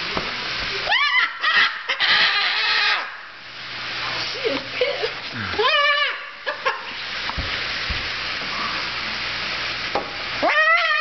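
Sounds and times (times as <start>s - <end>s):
steady hiss: 0.0s - 1.9s, 3.0s - 10.4s
cockatoo squawking harshly: 0.9s - 3.3s, 5.5s - 6.4s, 10.4s - 11.0s.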